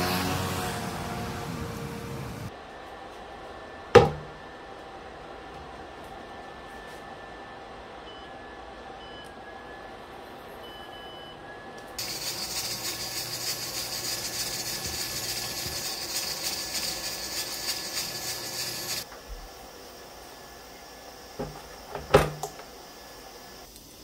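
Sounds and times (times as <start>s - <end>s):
fan hum: 0.0s - 23.7s
cooktop beeping: 12.0s - 19.1s
steam hissing: 12.0s - 24.0s.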